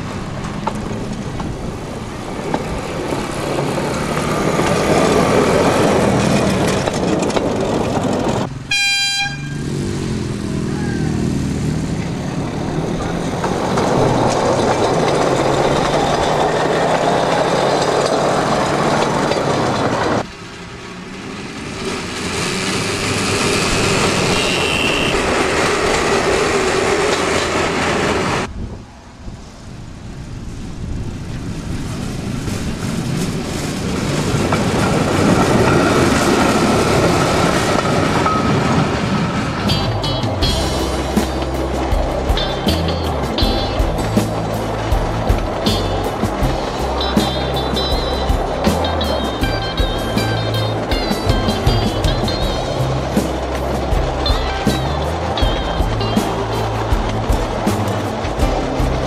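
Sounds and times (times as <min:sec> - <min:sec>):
rail handcar engines humming: 0:00.0 - 0:29.0, 0:30.9 - 0:59.0
short horn toot: 0:08.7 - 0:09.6, 0:24.2 - 0:25.4.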